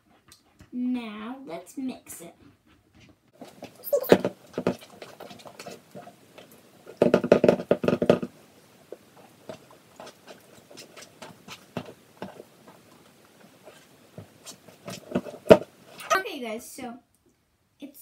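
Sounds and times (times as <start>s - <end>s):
utensil stirring slime in bowl: 3.4s - 16.2s.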